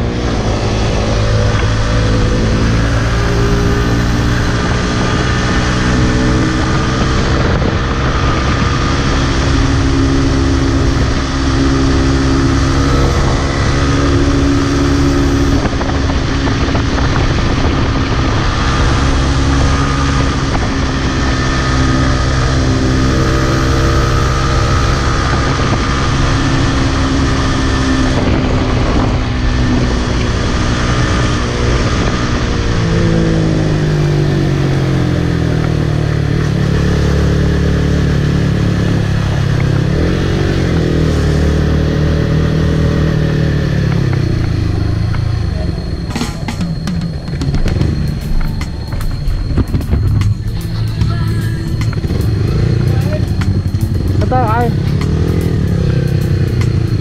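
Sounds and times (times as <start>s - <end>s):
motorcycle engine running: 0.0s - 57.0s
wind rushing over microphone: 0.0s - 57.0s.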